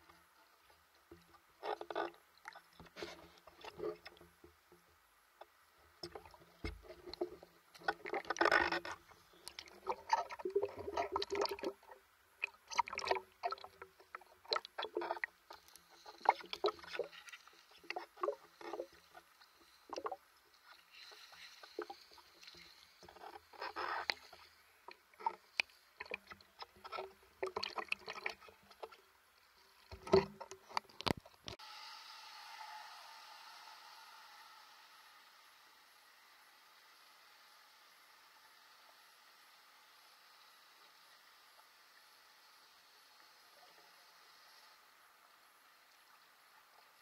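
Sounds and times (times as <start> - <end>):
water splashing and sloshing: 0.0 - 31.6.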